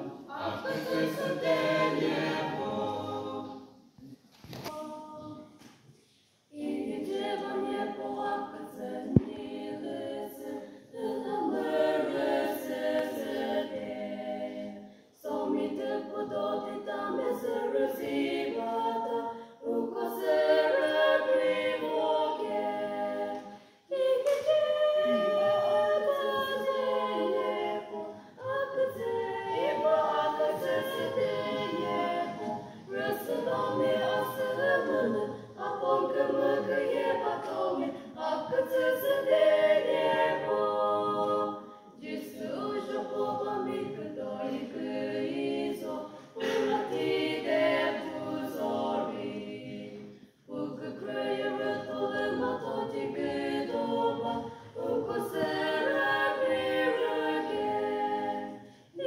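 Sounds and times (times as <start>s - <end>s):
women singing in harmony: 0.0s - 3.8s, 6.5s - 59.0s.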